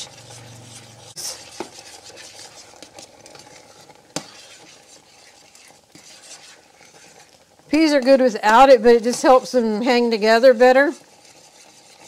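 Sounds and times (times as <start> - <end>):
faint stovetop sizzle: 0.0 - 12.0.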